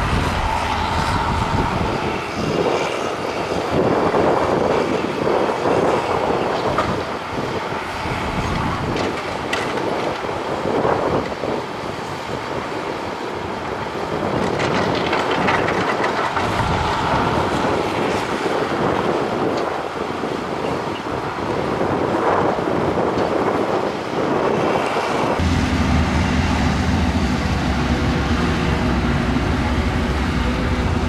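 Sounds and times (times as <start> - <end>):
diesel engine under load: 0.0 - 4.8, 6.2 - 20.7, 25.2 - 31.0
steel tracks clanking: 14.0 - 19.8.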